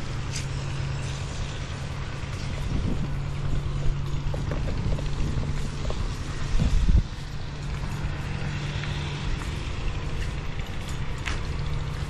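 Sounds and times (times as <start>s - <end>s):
boat engine running: 0.0s - 12.0s
wind on microphone: 2.2s - 8.4s.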